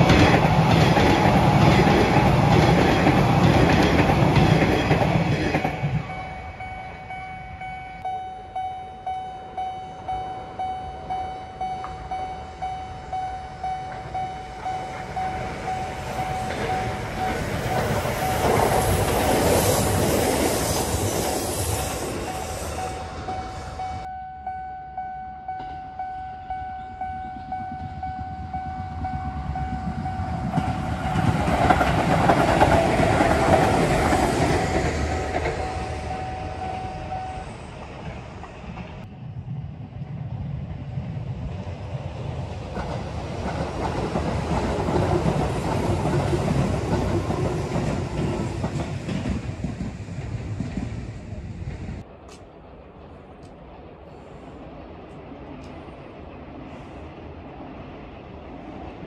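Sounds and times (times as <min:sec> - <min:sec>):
train wheels clattering: 0:00.0 - 0:06.8, 0:13.8 - 0:23.9, 0:28.9 - 0:39.1, 0:42.4 - 0:52.4
level crossing bell ringing: 0:05.7 - 0:18.6, 0:23.8 - 0:31.0.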